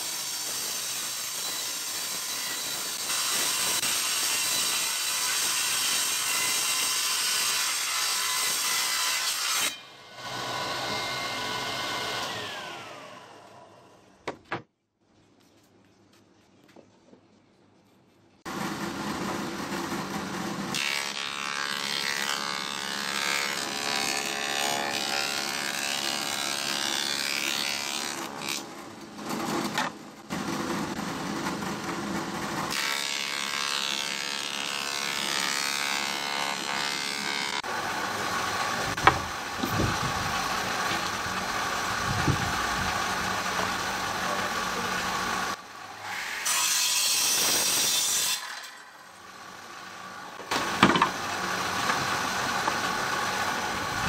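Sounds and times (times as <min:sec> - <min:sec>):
thickness planer cutting wood: 0:00.0 - 0:13.8, 0:18.5 - 0:28.7, 0:30.5 - 0:48.8, 0:49.5 - 0:54.0
miter saw cutting: 0:00.0 - 0:14.0, 0:30.3 - 0:54.0.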